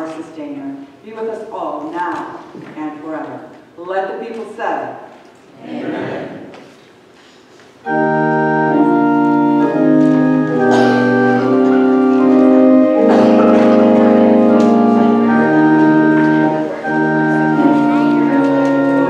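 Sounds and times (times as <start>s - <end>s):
pipe organ chords: 7.8s - 19.0s.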